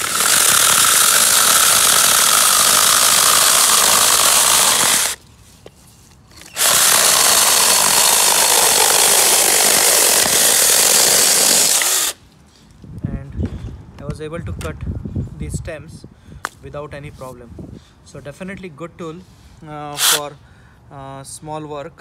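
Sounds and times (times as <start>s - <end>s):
cordless chainsaw cutting wood: 0.0s - 5.2s, 6.4s - 12.2s.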